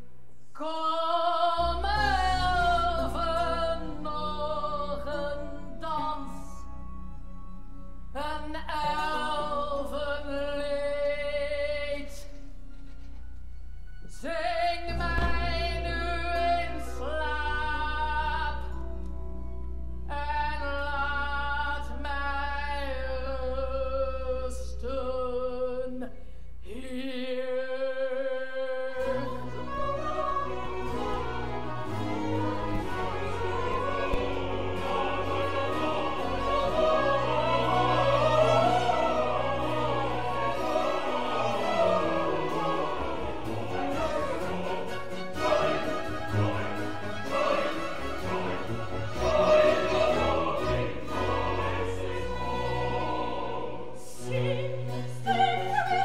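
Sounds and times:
woman singing operatically: 0.6s - 6.7s, 8.2s - 12.3s, 14.1s - 18.7s, 54.0s - 56.0s.

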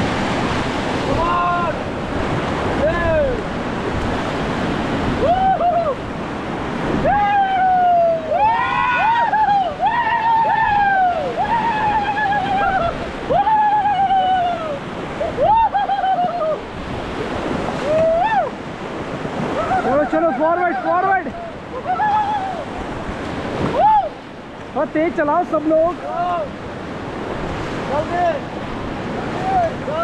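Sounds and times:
river rapids rushing and splashing: 0.0s - 30.0s
people whooping and yelling: 5.1s - 6.1s, 6.9s - 16.8s, 17.7s - 18.6s, 19.4s - 22.8s, 23.6s - 24.3s.

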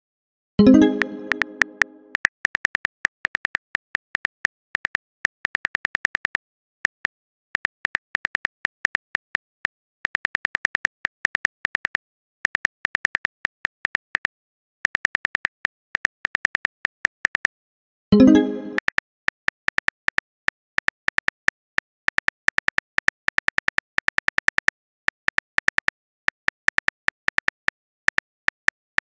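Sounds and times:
keyboard typing clicks: 0.6s - 7.0s, 18.2s - 19.0s.

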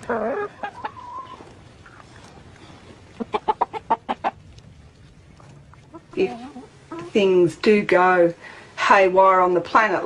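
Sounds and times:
chicken clucking: 0.0s - 4.4s, 5.8s - 7.2s.

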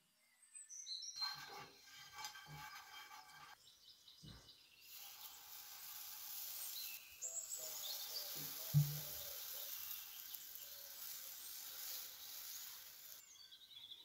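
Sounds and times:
batter sizzling in frying pan: 4.8s - 13.4s
wooden spoon knocking pan: 8.3s - 9.2s.

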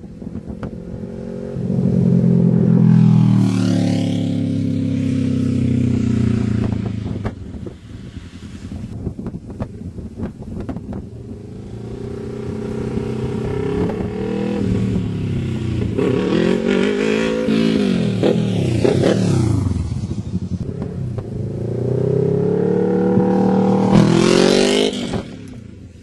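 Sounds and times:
motorcycle engine revving: 0.2s - 7.8s, 11.2s - 25.9s.

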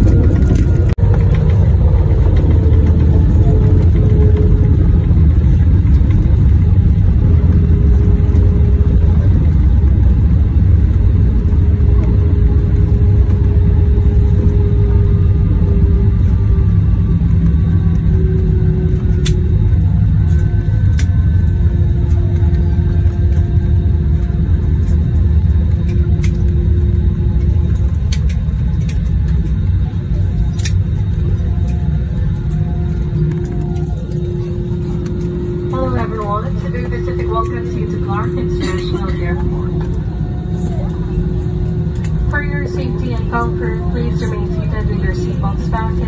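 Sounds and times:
jet cabin rumble: 0.0s - 46.0s
falling jet engine tone: 30.8s - 46.0s.

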